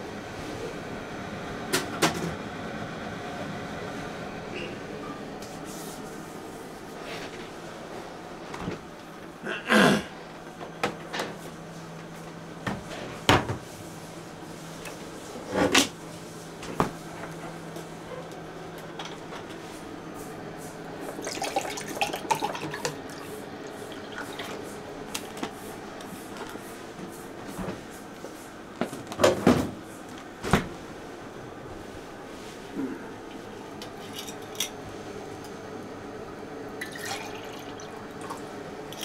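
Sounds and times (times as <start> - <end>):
tea pouring into a glass: 21.2 - 23.2, 36.8 - 38.4.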